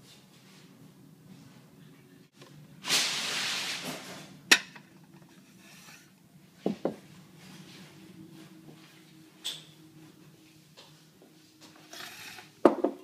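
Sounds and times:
knocks on wooden table: 0:12.7 - 0:13.0.

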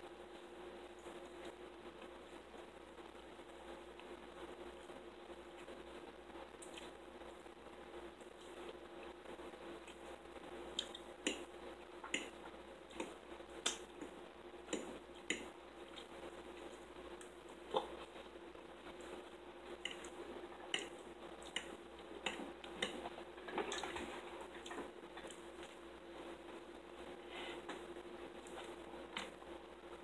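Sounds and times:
faint hum: 0:00.0 - 0:30.0
wet chewing: 0:18.9 - 0:25.8.

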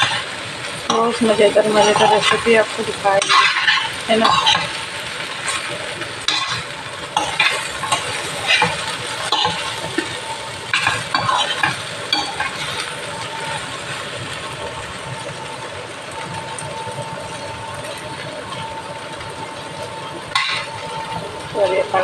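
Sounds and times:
okra sizzling in pan: 0:00.0 - 0:22.0
metal spoon scraping pan: 0:00.9 - 0:10.1, 0:10.7 - 0:12.8.

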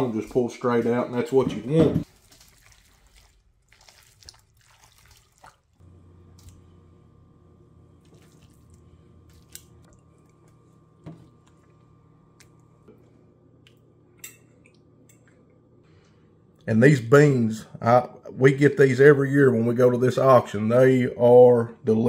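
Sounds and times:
steady low hum: 0:05.8 - 0:22.0.

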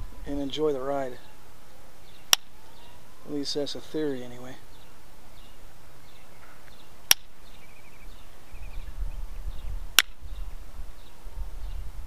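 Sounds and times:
faint bird chirps: 0:00.3 - 0:11.9
antler striking stone clicks: 0:02.2 - 0:02.5, 0:06.4 - 0:07.4, 0:09.9 - 0:10.2.

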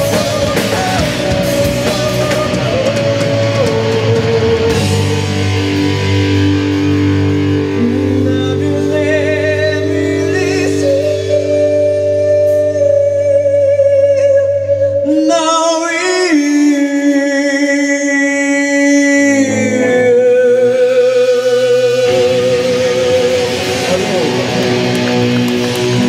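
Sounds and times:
drums and cymbals: 0:00.0 - 0:07.8
man singing with vibrato: 0:00.0 - 0:24.5
sustained guitar chords: 0:00.0 - 0:26.0.

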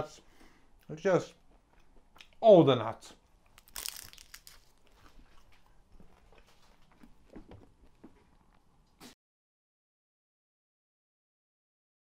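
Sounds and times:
faint pastry crackles: 0:03.2 - 0:08.6
crisp pastry bite crunch: 0:03.3 - 0:06.4.

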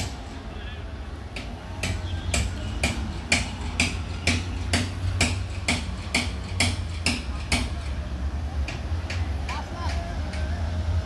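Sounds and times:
regular ticking clicks: 0:01.3 - 0:08.0.

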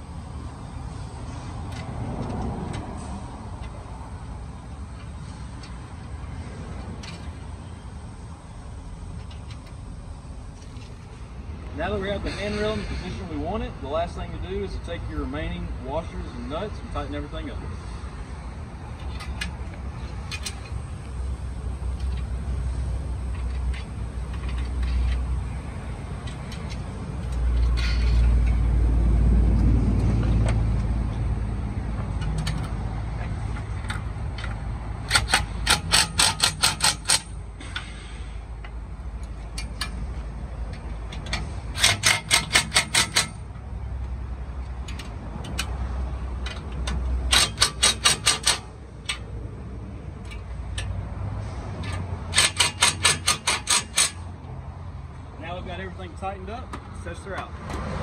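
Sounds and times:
impact driver hammering: 0:35.1 - 0:37.2, 0:41.8 - 0:43.4, 0:47.3 - 0:48.7, 0:52.3 - 0:54.2.

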